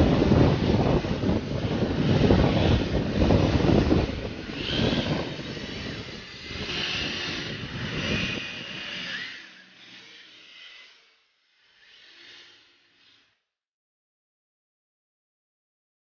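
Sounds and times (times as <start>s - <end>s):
wind rumble on microphone: 0.0s - 9.4s
rc car motors whining: 0.0s - 13.5s.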